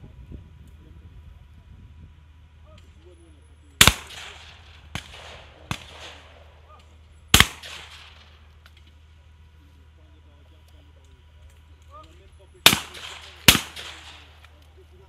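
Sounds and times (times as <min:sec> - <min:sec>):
shotgun blasts with echo: 0:03.8 - 0:08.6, 0:12.6 - 0:14.5.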